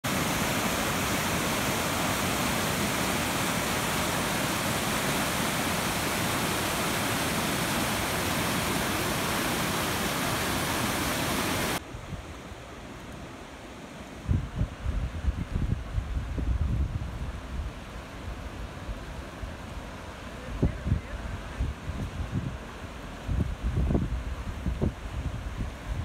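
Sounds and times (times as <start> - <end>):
whitewater rushing over boulders: 0.0 - 11.9.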